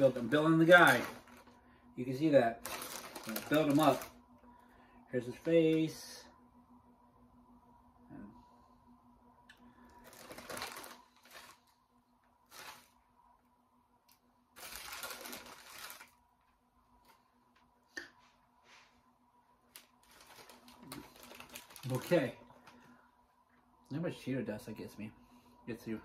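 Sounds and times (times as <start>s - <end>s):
snack bag crinkling: 0.0s - 1.6s, 2.5s - 4.2s, 9.9s - 11.8s, 12.4s - 13.0s, 14.5s - 16.2s, 19.7s - 22.8s.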